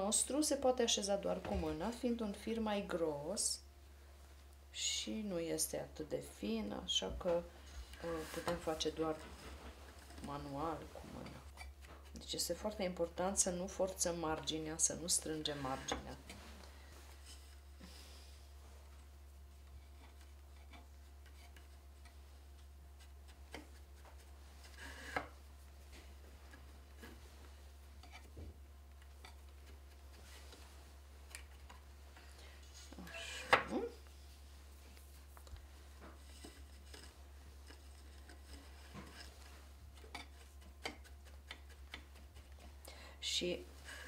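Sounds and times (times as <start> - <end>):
steady low hum: 0.0 - 44.0
fingers rubbing yarn on loom: 7.2 - 17.8, 19.5 - 33.5, 34.1 - 42.8
clicks and rustles of weaving: 19.6 - 33.0, 34.8 - 42.8.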